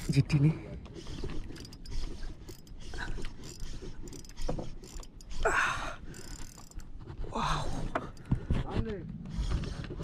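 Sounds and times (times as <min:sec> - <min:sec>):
fishing reel whirring and clicking: 0:00.9 - 0:07.0.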